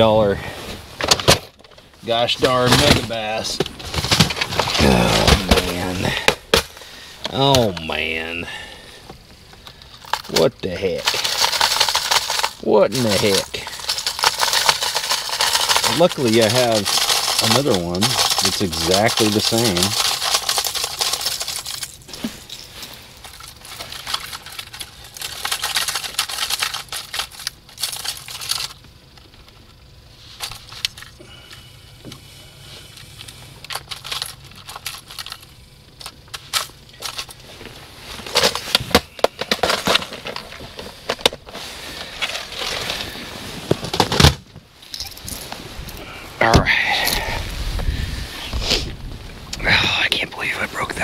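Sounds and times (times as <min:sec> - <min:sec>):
plastic tackle clattering: 0:02.4 - 0:06.7, 0:09.6 - 0:22.0, 0:23.2 - 0:28.8, 0:38.3 - 0:44.4.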